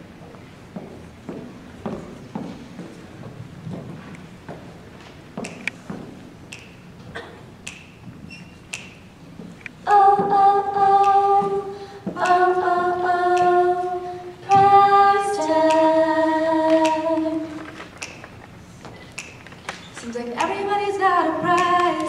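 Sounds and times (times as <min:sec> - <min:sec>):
girl singing into a microphone: 0:09.8 - 0:17.8, 0:20.0 - 0:22.0.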